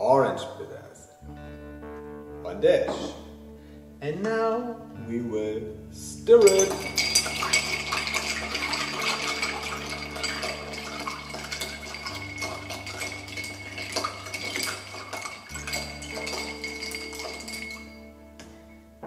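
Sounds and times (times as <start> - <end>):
spoon stirring ice in glass: 6.4 - 18.1.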